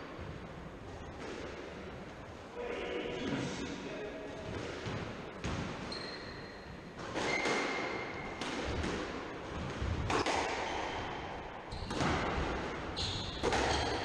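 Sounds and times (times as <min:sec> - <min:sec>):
squash ball striking rackets and walls: 0:04.4 - 0:14.0
shoes squeaking on wooden floor: 0:05.9 - 0:07.4.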